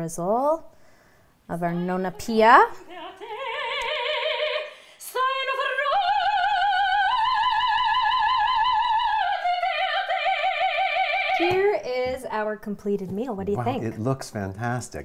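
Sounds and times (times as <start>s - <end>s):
soprano singing operatically: 1.6s - 11.8s.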